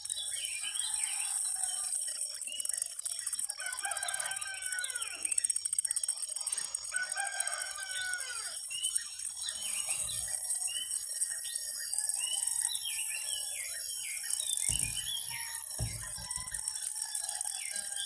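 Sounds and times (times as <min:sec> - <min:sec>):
birds calling: 0:00.0 - 0:18.0
roosters crowing: 0:03.5 - 0:05.3, 0:06.7 - 0:08.7, 0:14.8 - 0:18.0
low thud: 0:14.7 - 0:15.2, 0:15.8 - 0:16.6.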